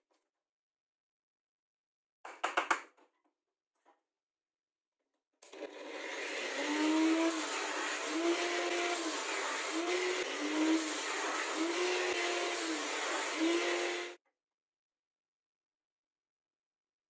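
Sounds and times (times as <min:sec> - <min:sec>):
angle grinder cutting steel: 0:05.5 - 0:14.2.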